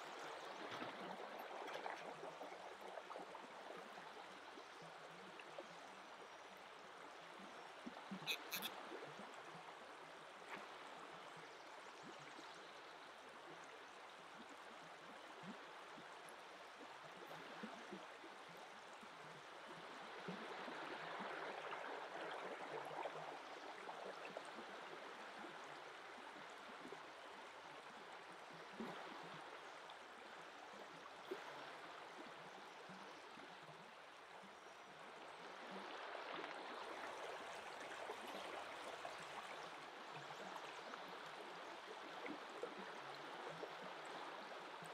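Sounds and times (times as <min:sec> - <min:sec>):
river flowing: 0:08.2 - 0:08.7.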